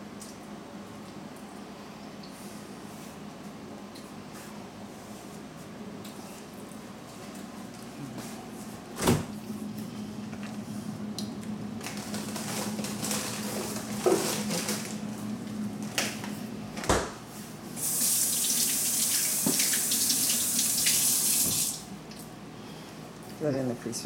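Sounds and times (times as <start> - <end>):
steady low hum: 0.0 - 17.8
tap running into steel sink: 19.4 - 19.9.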